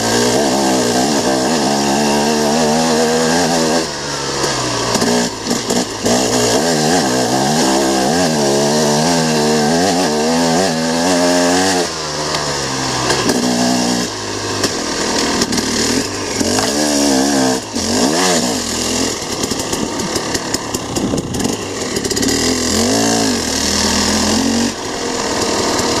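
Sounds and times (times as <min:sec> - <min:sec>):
dirt bike engine revving: 0:00.0 - 0:26.0
wind noise: 0:20.8 - 0:21.6.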